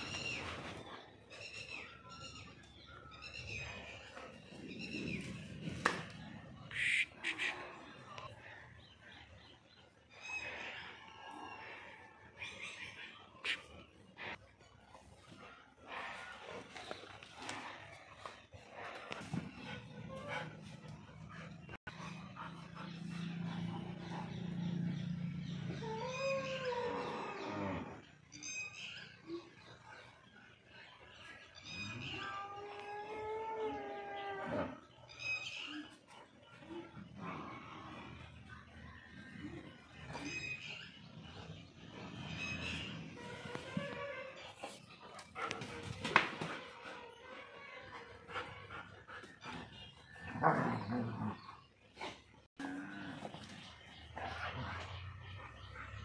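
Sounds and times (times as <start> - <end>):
animal growling: 15.8 - 28.2, 36.4 - 45.8, 47.2 - 56.0
animal crying: 25.7 - 28.7.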